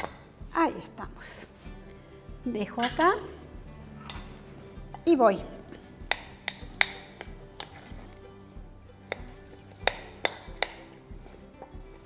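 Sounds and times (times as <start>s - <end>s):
faint background music: 0.0s - 12.0s
glassware and utensils clinking: 2.8s - 3.3s, 4.0s - 4.5s.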